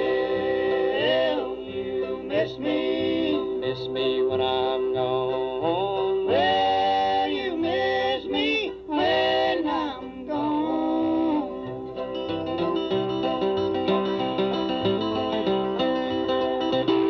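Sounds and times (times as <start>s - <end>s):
men singing in harmony: 0.0s - 11.6s
banjo: 0.0s - 17.0s
guitar: 0.0s - 17.0s.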